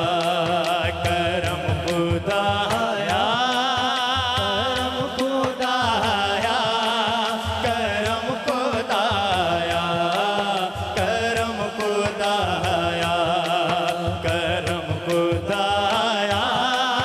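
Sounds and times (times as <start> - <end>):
man singing with vibrato: 0.0 - 17.0
steady percussion beat: 0.0 - 17.0.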